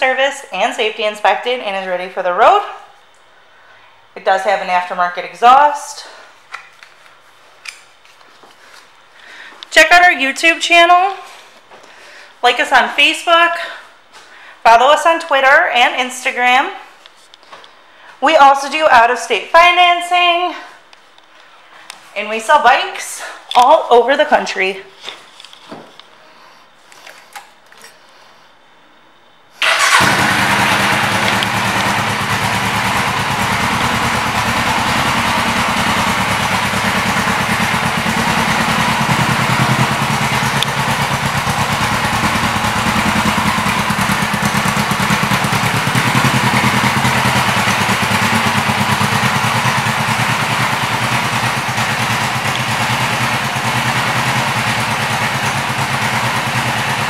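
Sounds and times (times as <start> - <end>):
motorcycle engine starting and idling: 29.6 - 57.0.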